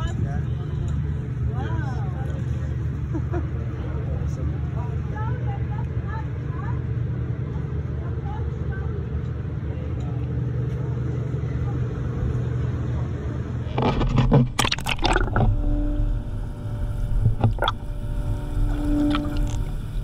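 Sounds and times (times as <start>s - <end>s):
boat engine rumble: 0.0s - 20.0s
muffled underwater machinery hum: 0.0s - 20.0s
water splashing: 13.7s - 20.0s
underwater bubbling clicks: 14.2s - 15.6s, 17.1s - 17.9s, 18.6s - 19.8s.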